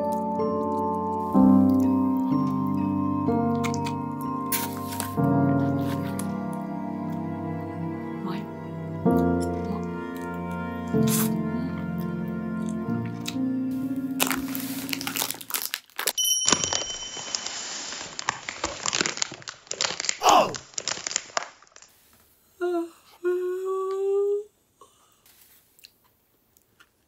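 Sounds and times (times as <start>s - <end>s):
plastic wrapper crinkling and tearing: 4.5s - 6.3s, 13.8s - 16.2s, 17.2s - 22.3s
person humming: 11.0s - 12.2s, 20.2s - 20.6s, 22.6s - 25.0s.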